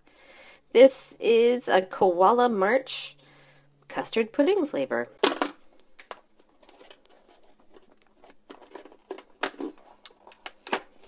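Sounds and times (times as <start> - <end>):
card crinkling and clicking: 5.8 - 11.0.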